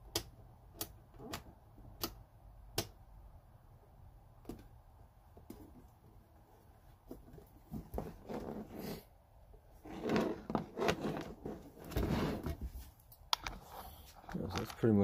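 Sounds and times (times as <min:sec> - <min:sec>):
device scraping and knocking on bench: 0:09.8 - 0:12.7.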